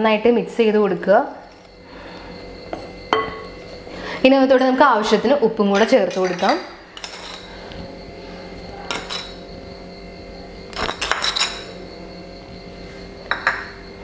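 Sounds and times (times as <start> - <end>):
metal spoon clinking glass bowl: 5.8 - 7.5, 8.9 - 9.4, 10.8 - 11.8, 13.3 - 13.7.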